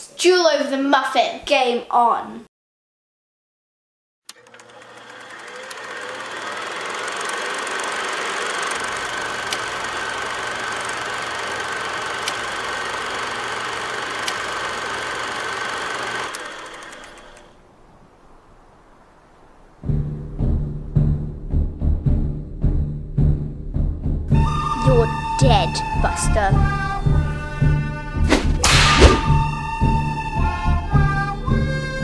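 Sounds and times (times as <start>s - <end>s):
film projector whirring: 4.3s - 17.6s
sharp pops: 28.3s - 29.4s.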